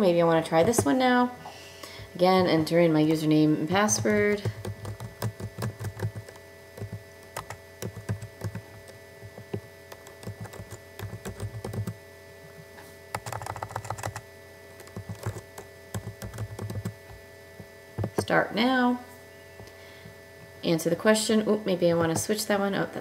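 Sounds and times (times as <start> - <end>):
faint steady hum: 0.0 - 23.0
keyboard typing: 0.5 - 1.0, 3.7 - 12.0, 13.1 - 14.2, 14.8 - 17.2, 18.0 - 18.3.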